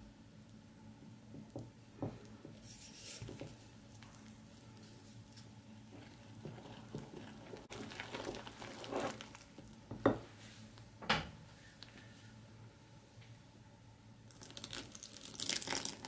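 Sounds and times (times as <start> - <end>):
spoon scraping dough in bowl: 2.6 - 3.6.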